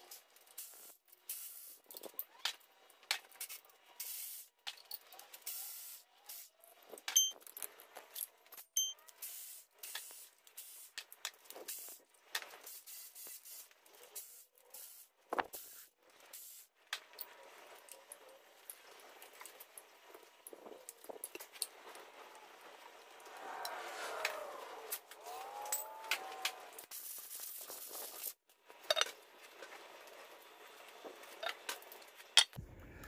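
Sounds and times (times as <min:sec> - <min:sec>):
metallic clink of tools: 0:07.1 - 0:09.0.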